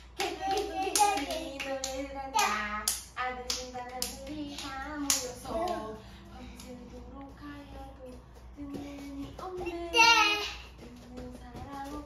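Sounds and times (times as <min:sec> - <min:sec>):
hands clapping: 0:00.2 - 0:05.8.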